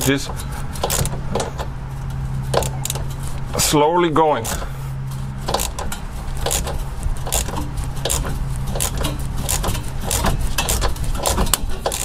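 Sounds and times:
hand ratchet clicking: 0.0 - 1.7, 5.5 - 12.0
steady low hum: 0.0 - 12.0.

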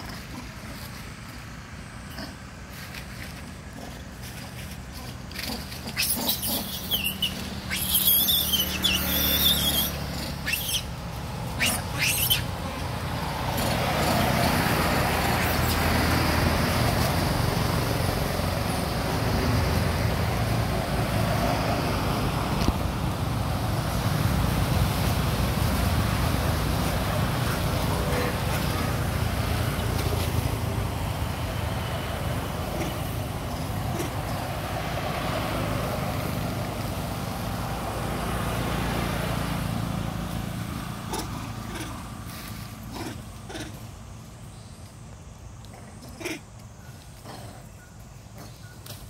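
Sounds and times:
road traffic: 0.0 - 49.0
monkey calls: 4.9 - 14.2, 15.0 - 15.9, 40.9 - 42.2, 42.9 - 43.9.

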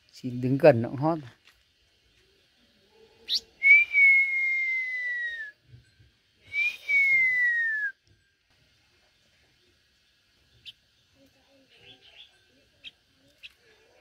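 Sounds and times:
bird singing whistles: 3.3 - 5.6, 6.4 - 8.0.

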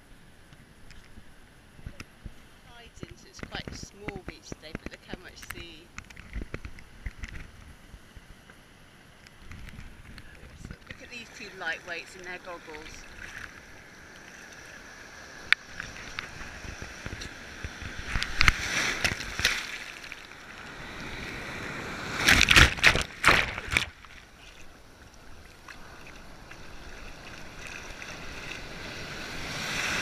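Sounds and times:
sea surf sloshing: 10.0 - 30.0
loud water splashes: 18.0 - 30.0.

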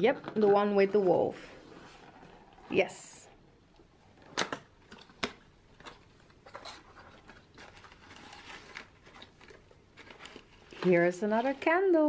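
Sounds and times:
shredded paper rustling: 6.5 - 12.0.

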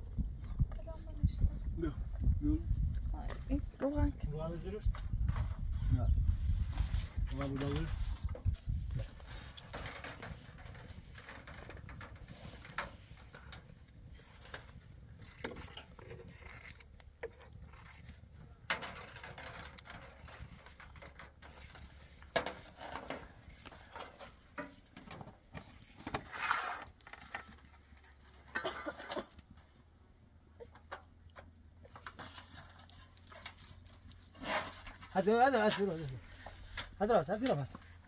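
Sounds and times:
foil crinkling: 32.0 - 37.7.

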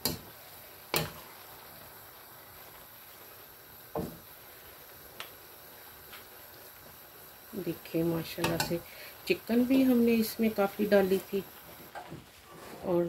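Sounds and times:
low steady hiss: 0.0 - 13.0
spatula knocking metal wok: 0.9 - 1.2, 8.4 - 8.8.

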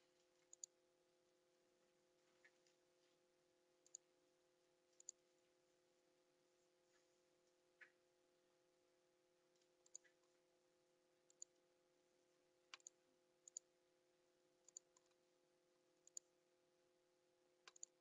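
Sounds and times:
faint steady hum: 0.0 - 18.0
computer mouse clicking: 0.4 - 0.8, 3.8 - 4.1, 5.0 - 5.2, 9.6 - 10.3, 11.3 - 11.6, 12.7 - 13.7, 14.6 - 15.2, 16.0 - 16.3, 17.6 - 18.0.

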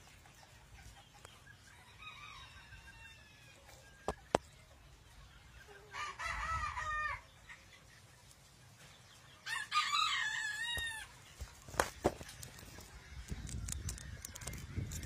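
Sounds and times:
rooster crowing: 9.5 - 11.0.

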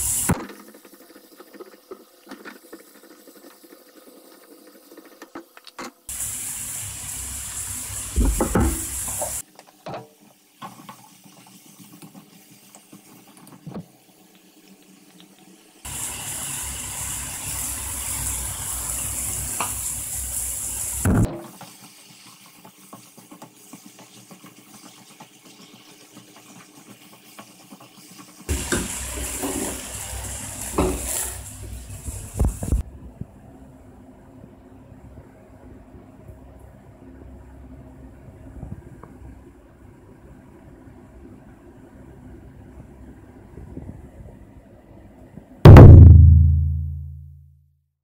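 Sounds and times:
food sizzling in a frying pan: 0.0 - 5.4, 6.1 - 32.8.

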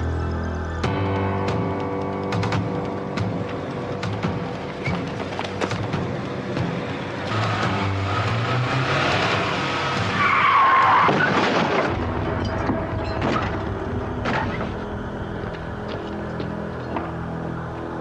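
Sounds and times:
car tyres screeching: 4.5 - 17.1.

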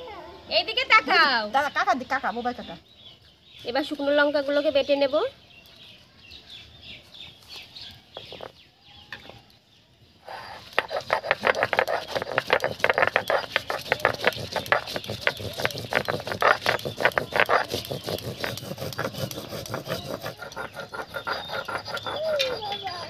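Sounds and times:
stone grinding on stone: 10.3 - 23.0.

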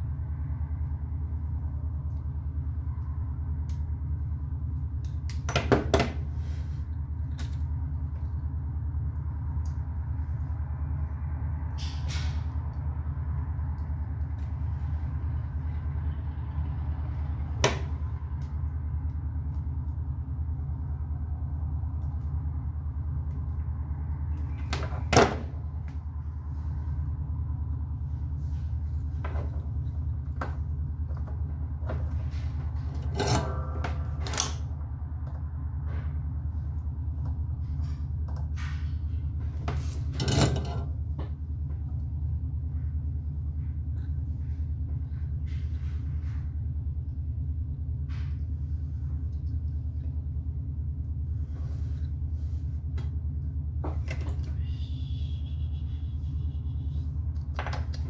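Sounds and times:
low background hum: 0.0 - 58.0.

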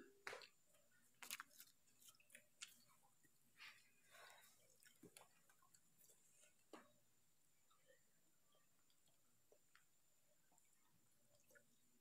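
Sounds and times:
soft chewing: 0.0 - 12.0.

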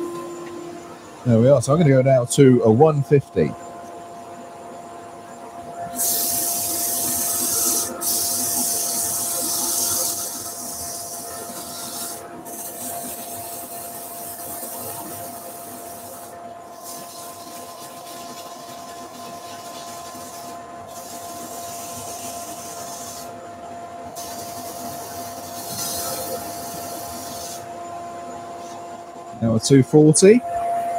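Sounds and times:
lathe running tone: 0.0 - 30.9
sandpaper rubbing spinning wood: 5.9 - 23.4, 24.1 - 27.7.

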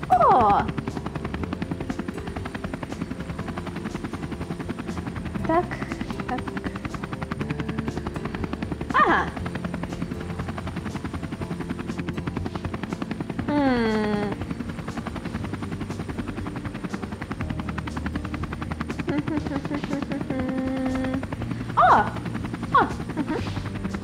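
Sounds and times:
helicopter rotor chopping: 0.0 - 24.0.

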